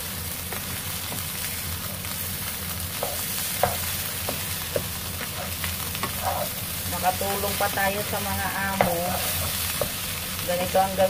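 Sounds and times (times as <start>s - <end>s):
rice sizzling in a frying pan: 0.0s - 11.0s
spatula tapping and scraping pan: 3.0s - 6.5s, 7.7s - 10.0s.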